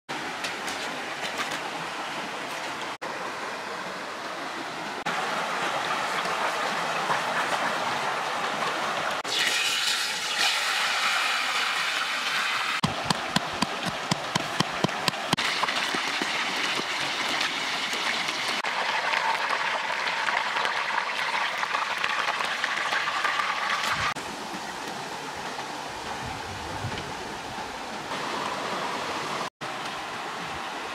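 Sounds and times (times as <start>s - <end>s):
fish frying with crackling pops: 9.2s - 24.2s.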